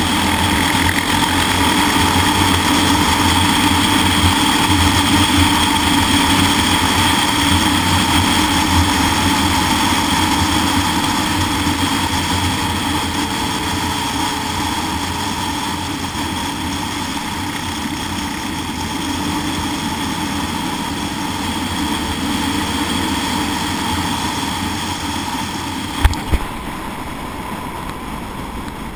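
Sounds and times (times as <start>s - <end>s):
motorcycle engine running: 0.0s - 28.9s
wind rushing over microphone: 23.5s - 28.9s.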